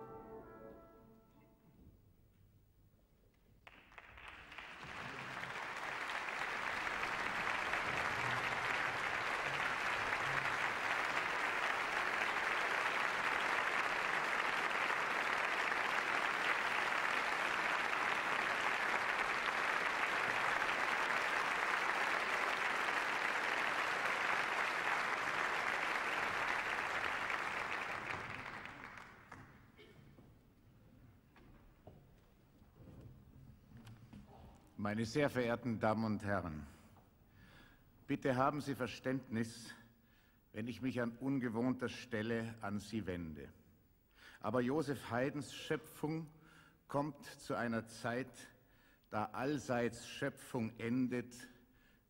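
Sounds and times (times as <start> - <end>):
audience applauding: 3.6 - 29.8.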